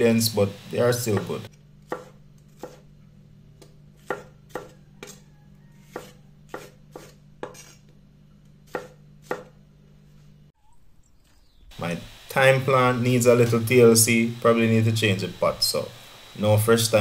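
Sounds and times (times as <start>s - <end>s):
knife chopping on wooden board: 1.1s - 2.9s, 3.6s - 5.2s, 5.8s - 7.9s, 8.6s - 9.6s.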